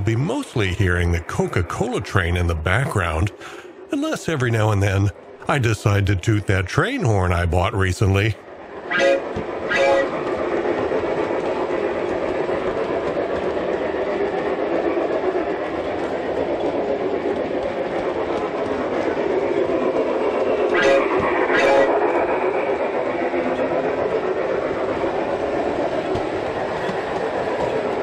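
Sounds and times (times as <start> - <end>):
model trains rolling on track: 0.0 - 28.0
steam train running sound: 0.0 - 28.0
short train toots: 8.9 - 10.2, 20.7 - 22.0.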